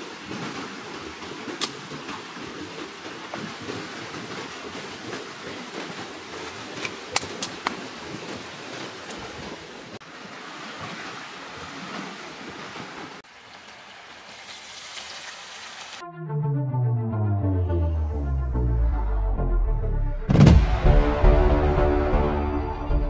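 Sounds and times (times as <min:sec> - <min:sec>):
rustling leaves and branches: 0:00.0 - 0:16.0
branches snapping: 0:06.8 - 0:07.8.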